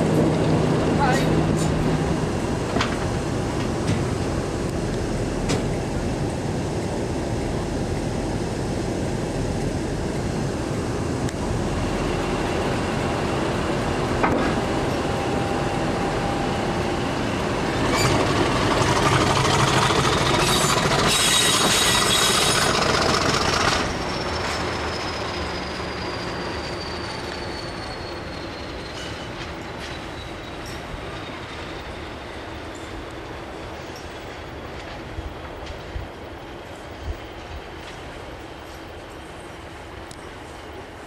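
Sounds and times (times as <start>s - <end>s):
diesel locomotive engine working: 0.0s - 41.0s
train wheels on rails: 0.0s - 41.0s
high wheel squeal: 17.8s - 32.0s.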